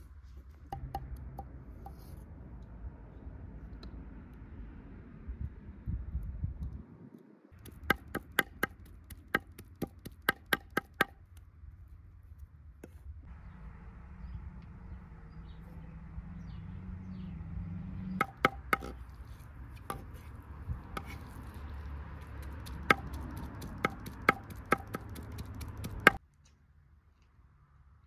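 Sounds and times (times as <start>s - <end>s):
knife chopping on wooden board: 18.2s - 19.0s, 21.0s - 21.2s, 22.4s - 26.2s.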